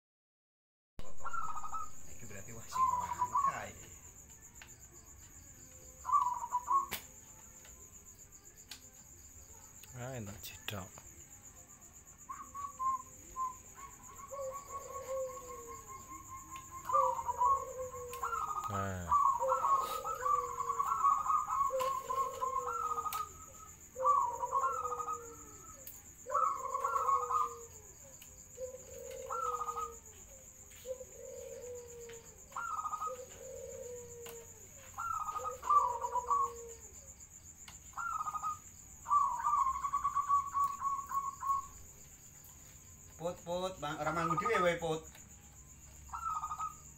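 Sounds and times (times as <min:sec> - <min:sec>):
dove cooing: 0:01.0 - 0:04.2, 0:05.7 - 0:07.9, 0:12.0 - 0:37.2, 0:37.9 - 0:41.9, 0:46.1 - 0:46.9.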